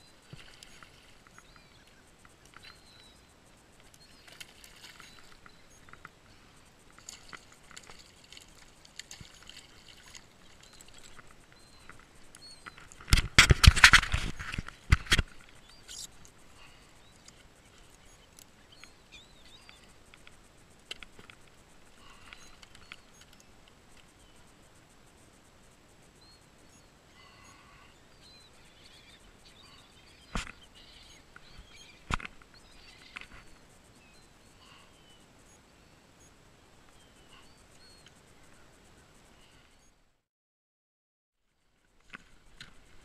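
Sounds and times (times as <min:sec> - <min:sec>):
fishing gear handling noise: 0:06.8 - 0:15.6.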